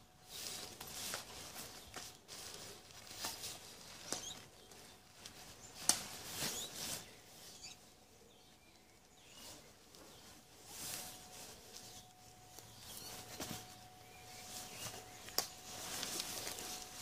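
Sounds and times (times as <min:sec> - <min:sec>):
nylon fabric rustling: 0:00.0 - 0:07.9, 0:09.3 - 0:17.0.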